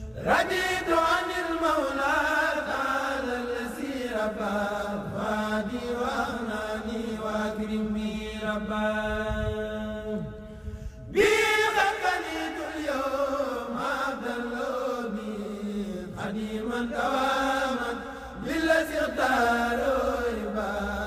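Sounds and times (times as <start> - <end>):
person chanting devotional poem: 0.0 - 21.0.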